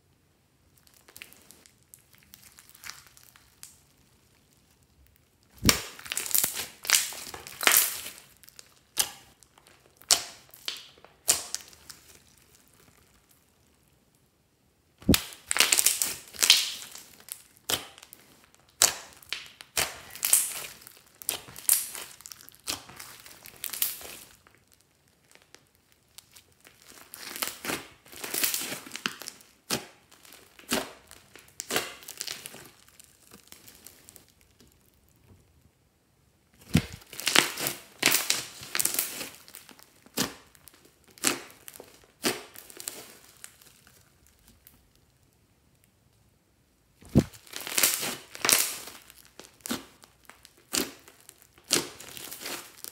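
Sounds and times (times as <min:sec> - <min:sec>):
sticky slime crackling: 0:00.7 - 0:14.0, 0:15.0 - 0:35.3, 0:36.6 - 0:45.5, 0:47.0 - 0:52.9.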